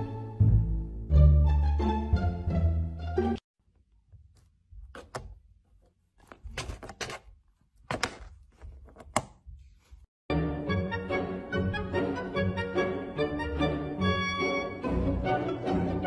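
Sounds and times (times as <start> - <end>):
music: 0.0 - 3.4, 10.3 - 16.0.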